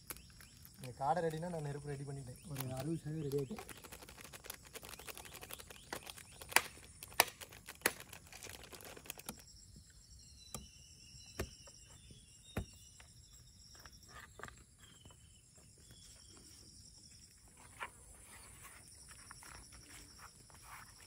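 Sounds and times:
high insect trill: 0.0 - 21.0
plastic packet crinkling and tearing: 2.4 - 9.4.

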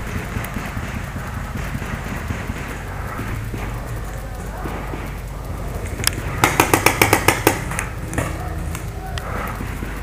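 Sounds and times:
steady rustling hiss: 0.0 - 10.0
faint ticks: 7.6 - 10.0.

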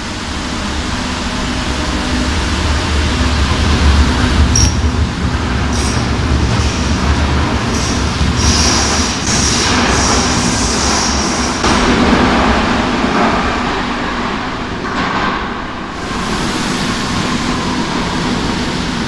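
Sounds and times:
train rumble: 0.0 - 19.0.

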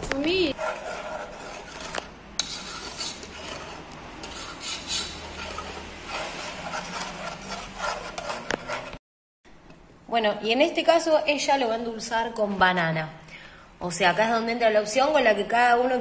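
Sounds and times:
spoon scraping metal saucepan: 0.5 - 9.0.

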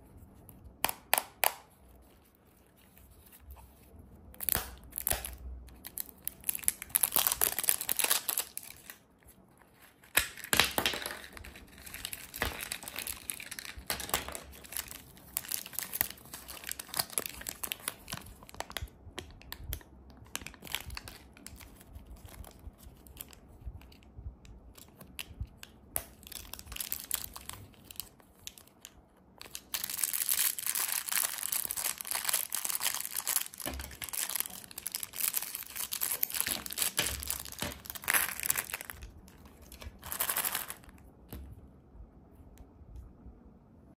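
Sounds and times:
plastic candy packet crinkling: 4.4 - 9.1, 10.1 - 23.4, 26.0 - 41.1
plastic pieces clicking and crackling: 29.4 - 41.0.

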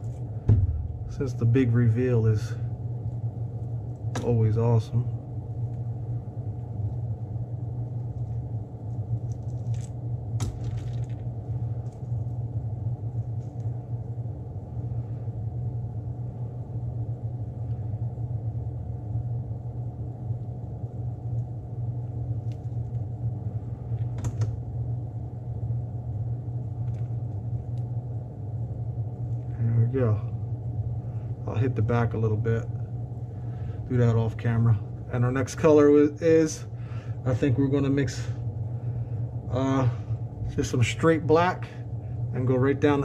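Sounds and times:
low motor drone: 0.0 - 43.0.

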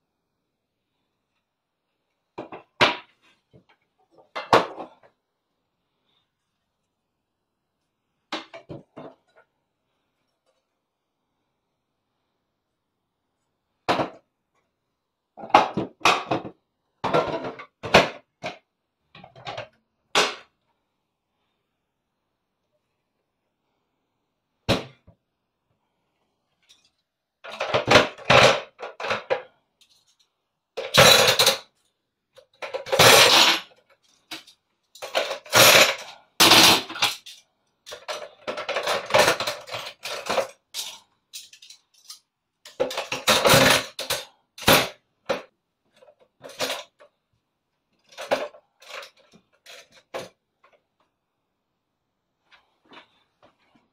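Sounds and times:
cutlery clattering in a drainer: 30.8 - 31.7, 35.0 - 44.9.

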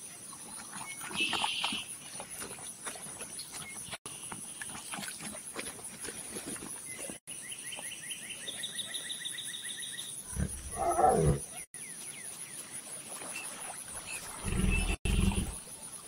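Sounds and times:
big cat roar: 10.3 - 11.4, 14.4 - 15.6.

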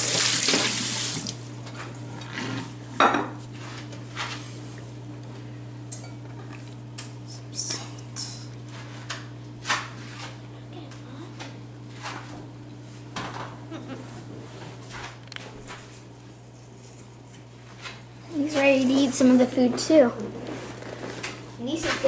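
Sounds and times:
tap water running into sink: 0.0 - 1.5
steady low hum: 1.3 - 22.0.

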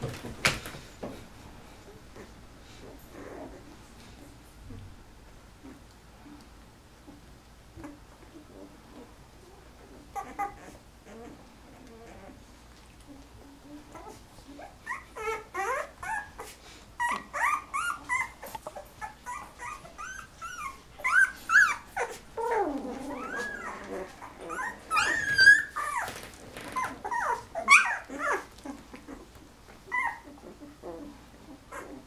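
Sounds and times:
puppies squeaking and whimpering: 7.8 - 12.4, 13.0 - 32.0.

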